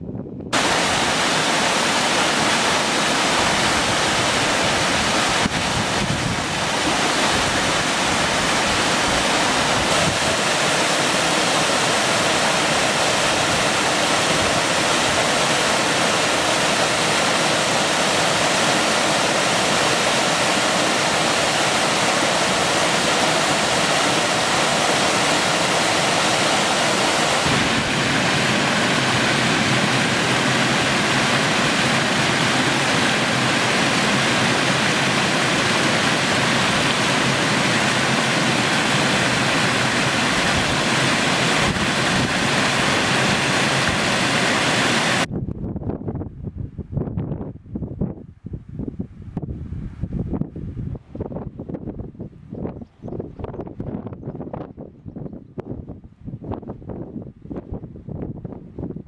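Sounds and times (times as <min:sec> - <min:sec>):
waterfall rushing: 0:00.6 - 0:45.3.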